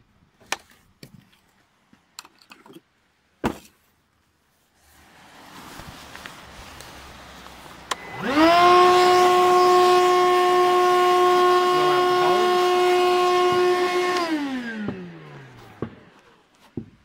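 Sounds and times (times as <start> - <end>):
vacuum motor whine: 7.7 - 16.4.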